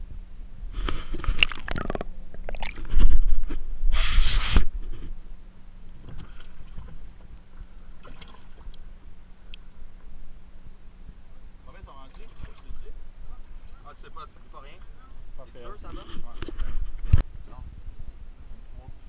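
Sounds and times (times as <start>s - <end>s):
water sloshing in tank: 1.3s - 3.2s.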